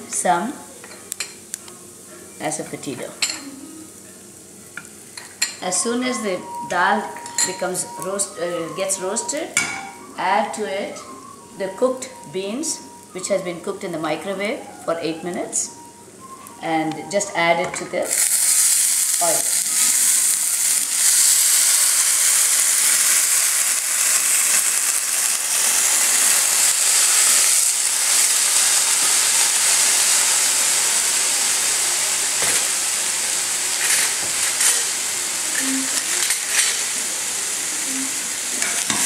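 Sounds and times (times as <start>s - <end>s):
beans sizzling in oil: 15.6s - 39.0s.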